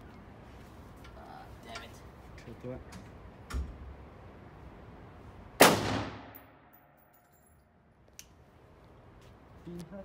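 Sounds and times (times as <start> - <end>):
rifle shot echoing: 5.6 - 6.7.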